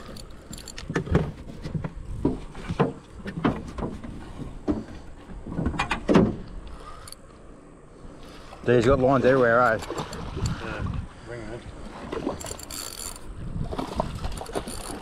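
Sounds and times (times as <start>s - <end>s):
fishing rod scrapes and knocks: 0.0s - 6.1s, 12.1s - 15.0s
spinning reel cranking: 12.4s - 13.2s, 14.4s - 15.0s.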